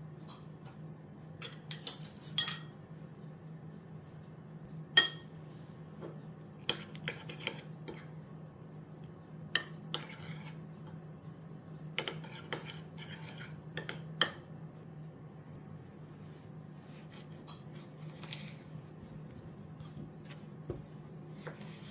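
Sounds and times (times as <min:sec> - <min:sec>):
cutlery clinking against dishes: 0:01.4 - 0:02.8, 0:05.0 - 0:05.3, 0:12.0 - 0:14.5, 0:17.4 - 0:17.8.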